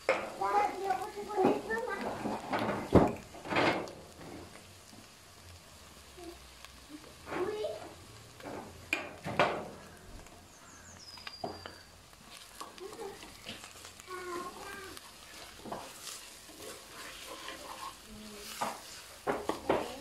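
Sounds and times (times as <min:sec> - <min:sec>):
meat sizzling in a pot: 0:00.0 - 0:20.0
spoon scraping and knocking pot: 0:15.3 - 0:20.0.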